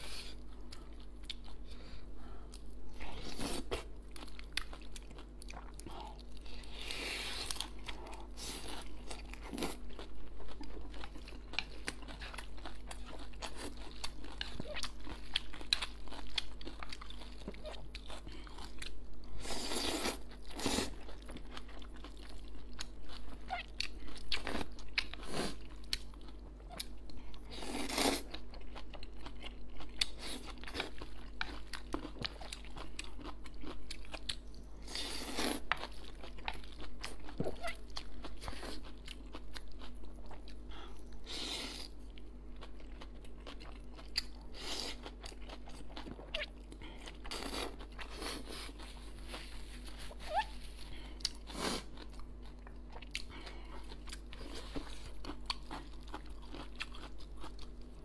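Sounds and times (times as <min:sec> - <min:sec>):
chewing with wet mouth clicks: 0:51.2 - 0:57.9.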